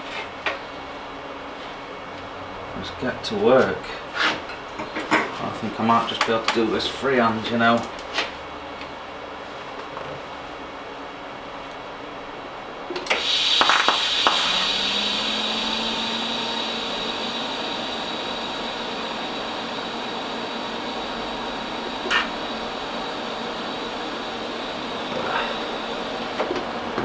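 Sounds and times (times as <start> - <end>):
welding arc crackle: 13.1 - 27.0
welding hiss: 13.1 - 27.0.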